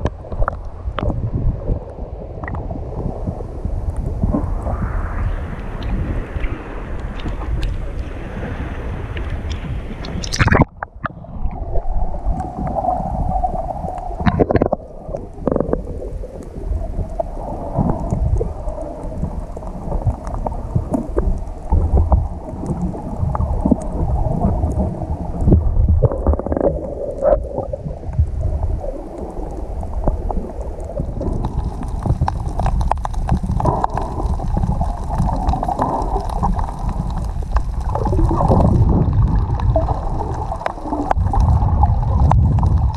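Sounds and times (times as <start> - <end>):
muffled underwater rumble: 0.0 - 42.9
water gurgling and bubbles: 0.0 - 42.9
water sloshing against camera: 9.2 - 42.9.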